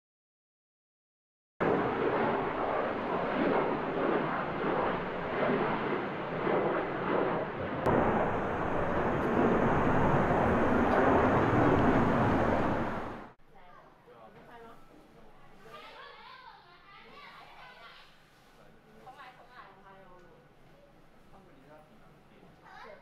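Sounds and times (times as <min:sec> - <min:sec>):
jet engines roaring: 0:01.6 - 0:13.4.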